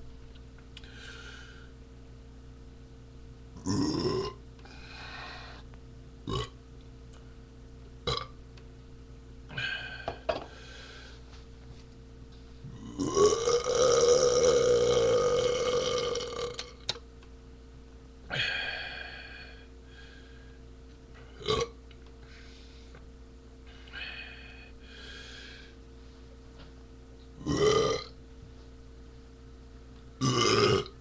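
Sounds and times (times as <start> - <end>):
man burping: 3.6 - 4.4, 6.3 - 6.6, 8.1 - 8.3, 12.7 - 16.8, 21.4 - 21.8, 27.4 - 28.2, 30.2 - 31.0.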